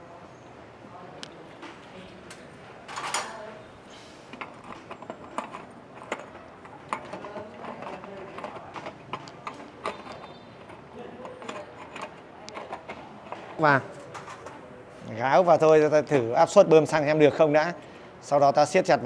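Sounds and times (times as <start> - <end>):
plastic and metal parts clicking: 4.3 - 14.6.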